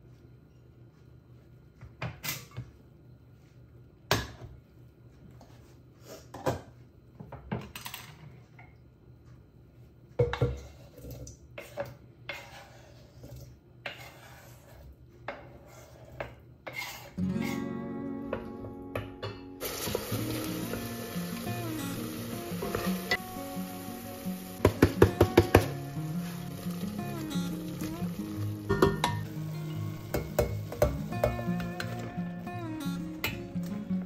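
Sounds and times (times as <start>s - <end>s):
knife scraping cutting board: 11.6s - 17.6s
background music: 17.2s - 34.0s
pot and utensils clinking: 28.6s - 32.0s.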